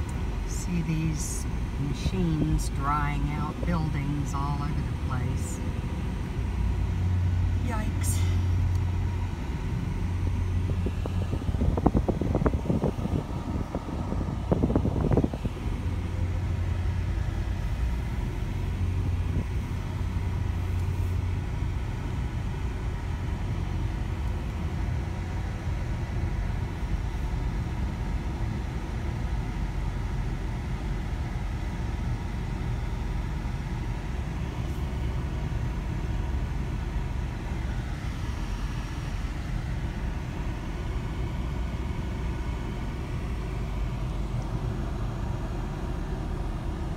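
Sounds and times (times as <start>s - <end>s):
car cabin engine and road hum: 0.0s - 46.9s.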